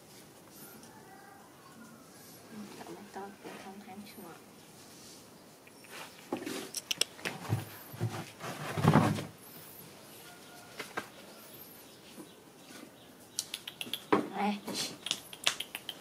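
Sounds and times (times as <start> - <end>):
animals scuffling on dirt: 2.5 - 13.2.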